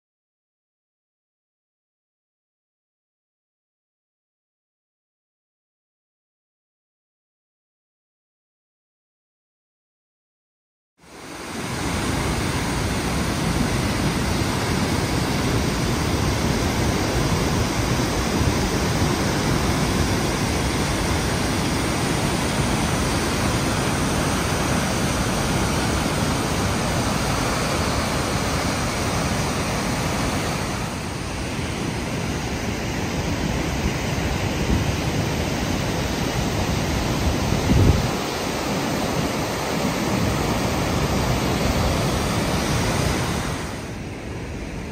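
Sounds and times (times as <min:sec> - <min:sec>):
water rushing over spillway: 0:11.0 - 0:44.9.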